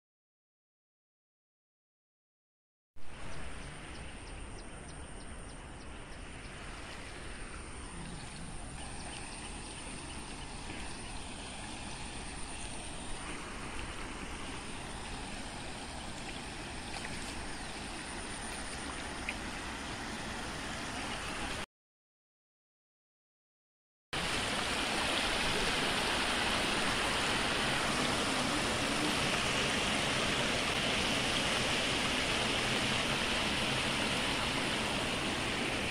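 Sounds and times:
river water rushing: 6.2 - 21.6, 24.2 - 35.9.

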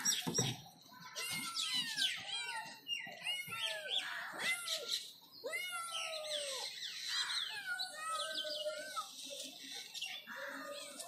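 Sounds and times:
kittens mewing: 1.2 - 9.1.

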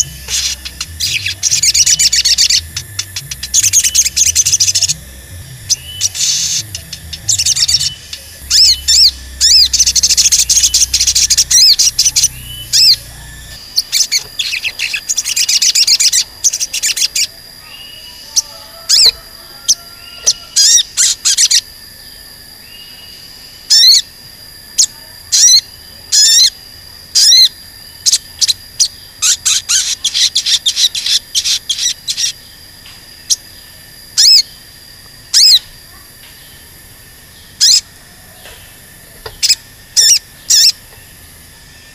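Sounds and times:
bird chirping: 0.0 - 21.7, 37.4 - 41.9.

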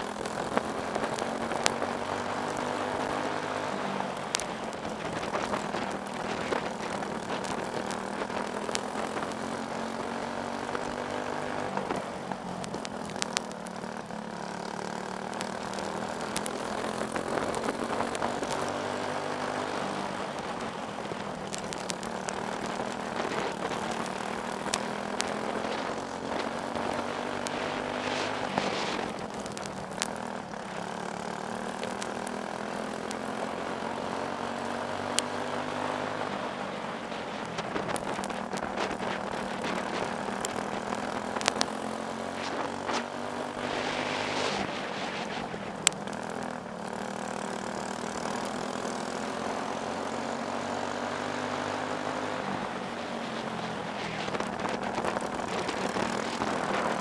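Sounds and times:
kart engine racing: 0.0 - 57.0
sharp clicks: 12.6 - 18.7, 21.2 - 33.3.

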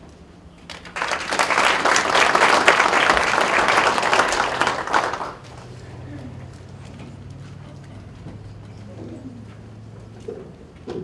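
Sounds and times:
audience applauding: 0.7 - 5.8.

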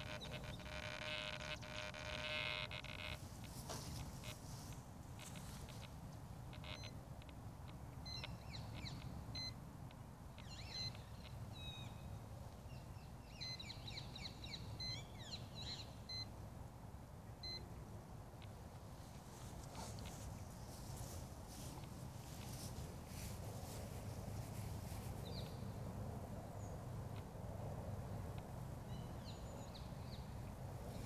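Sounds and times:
short high electronic beeps: 0.0 - 3.2, 6.6 - 7.0
birds chirping: 0.0 - 4.4, 8.0 - 9.6.

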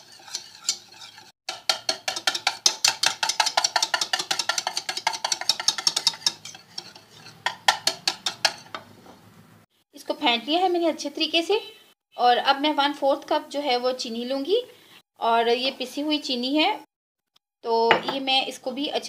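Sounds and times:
utensil clicking against bowl: 1.5 - 6.4.

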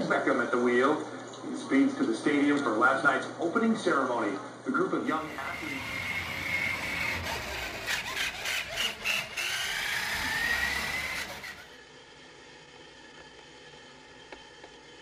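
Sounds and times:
toy truck motor whining: 5.1 - 11.8.

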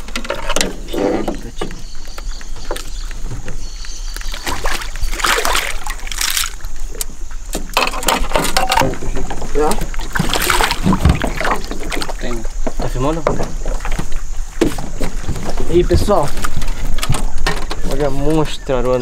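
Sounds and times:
water splashing against boat: 0.0 - 19.0
fish thrashing at surface: 4.2 - 6.9, 7.7 - 12.5.

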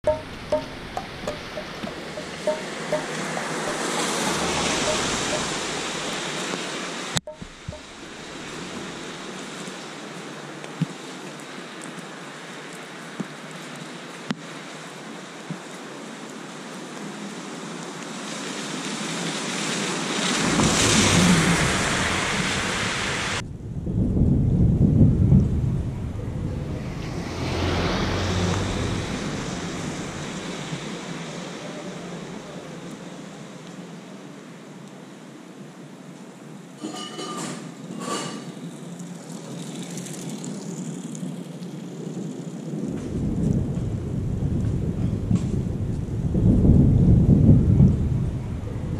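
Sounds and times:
vehicle rumble: 0.0 - 9.8, 20.2 - 33.8
vehicle swishing on wet road: 0.0 - 34.3, 37.8 - 48.9
steady rain: 0.0 - 48.9.

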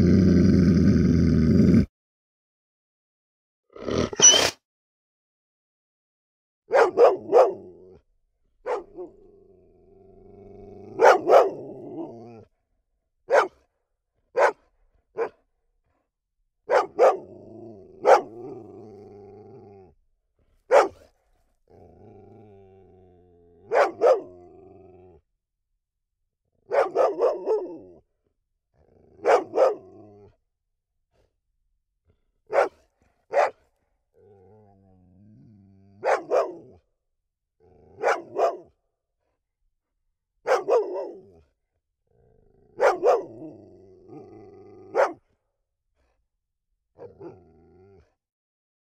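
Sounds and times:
dog growling: 0.0 - 1.9, 8.7 - 12.6, 16.8 - 25.2, 28.8 - 30.4, 34.1 - 36.8, 37.6 - 38.6, 40.6 - 45.3, 47.0 - 48.2
dog barking: 6.7 - 7.8, 8.6 - 9.1, 11.0 - 11.7, 13.3 - 13.6, 14.3 - 14.6, 15.2 - 15.4, 16.7 - 17.3, 18.0 - 18.4, 20.7 - 21.1, 23.6 - 24.4, 26.7 - 27.9, 29.2 - 29.9, 32.5 - 33.6, 36.0 - 36.8, 38.0 - 38.7, 40.4 - 41.3, 42.8 - 43.4, 44.9 - 45.2.

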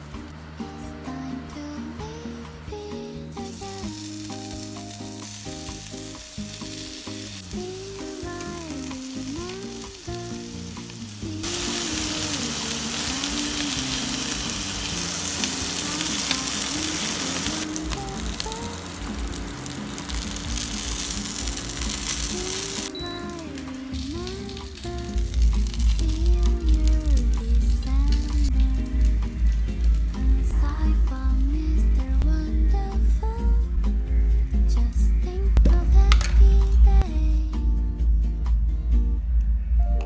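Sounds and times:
fish sizzling in a wok: 3.4 - 32.0.

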